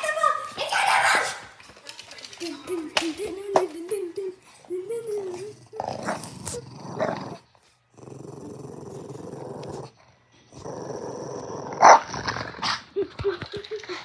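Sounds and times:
dog play-growling: 4.8 - 12.9.

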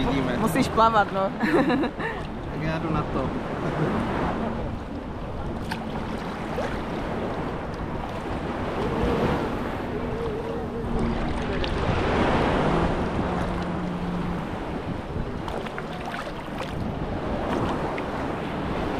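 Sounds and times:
sea waves washing up beach: 0.0 - 18.9
wind buffeting microphone: 0.0 - 18.9
low engine drone: 3.3 - 17.5.

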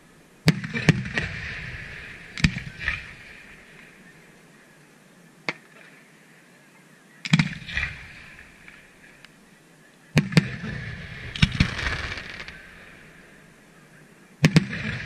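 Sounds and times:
firework shells bursting: 10.2 - 12.8
echoing rumble: 10.2 - 15.0.

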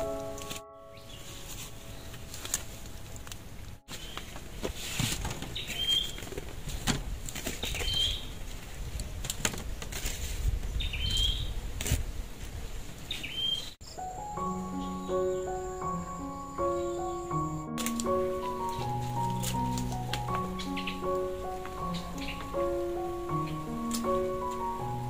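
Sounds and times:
bird chirping: 0.0 - 4.4, 5.5 - 6.2, 7.6 - 8.4, 10.7 - 11.6, 13.1 - 25.0.

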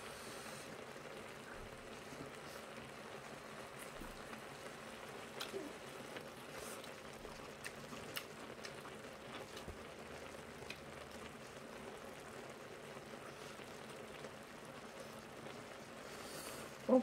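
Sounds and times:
faint steady hiss: 0.0 - 17.0
chewing: 5.3 - 11.6.

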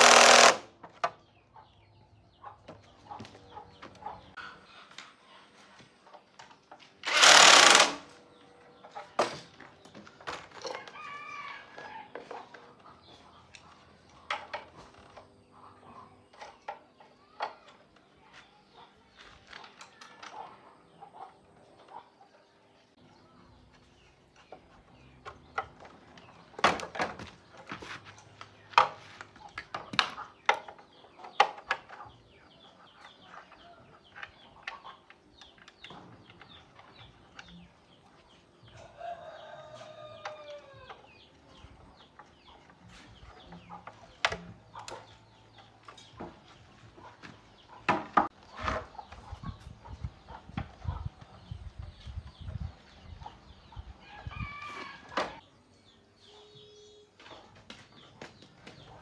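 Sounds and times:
chickens clucking: 1.2 - 7.0, 11.8 - 26.6, 27.4 - 56.4
rooster crowing: 10.8 - 12.1, 54.0 - 55.4.

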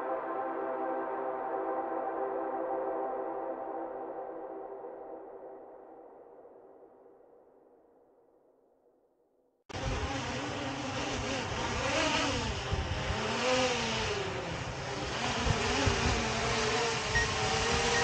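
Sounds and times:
drone propellers whirring: 9.7 - 18.0.

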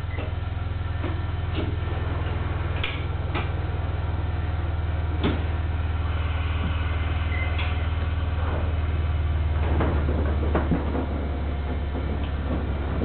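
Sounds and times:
electric train equipment humming: 0.0 - 13.0
sharp clicks and knocks: 1.0 - 1.8, 2.8 - 3.6, 5.2 - 5.5, 9.6 - 13.0.

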